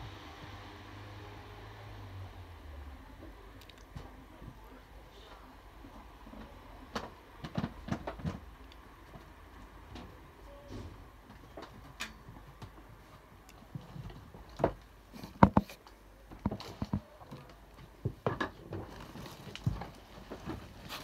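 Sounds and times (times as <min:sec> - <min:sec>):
faint low hum: 0:00.0 - 0:21.0
sharp clicks and knocks: 0:14.0 - 0:17.1.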